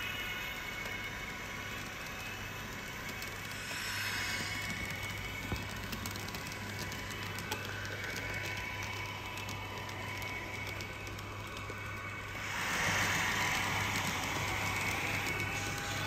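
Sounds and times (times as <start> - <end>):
model train humming: 0.0 - 16.0
wheels clicking on rails: 0.0 - 16.0.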